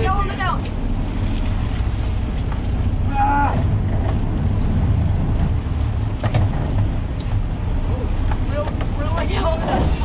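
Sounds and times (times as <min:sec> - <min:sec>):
boat engines rumbling: 0:00.0 - 0:10.0
water rushing at stern: 0:00.0 - 0:10.0.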